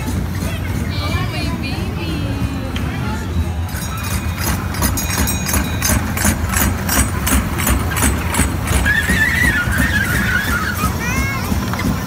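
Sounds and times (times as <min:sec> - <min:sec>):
even track clicking: 0:03.7 - 0:12.0.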